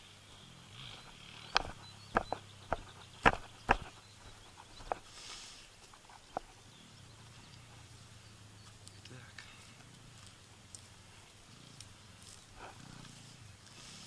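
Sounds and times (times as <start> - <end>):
footsteps on grass: 1.6 - 6.6, 8.6 - 14.0.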